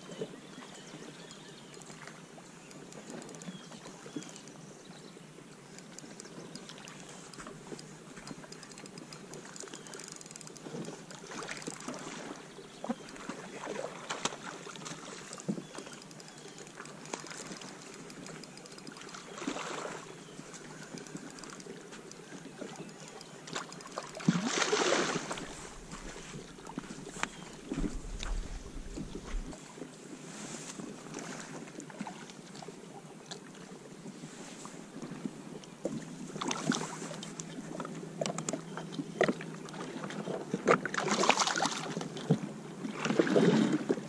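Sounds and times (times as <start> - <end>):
water sloshing and trickling: 5.7 - 44.0
water splashing: 22.6 - 29.6.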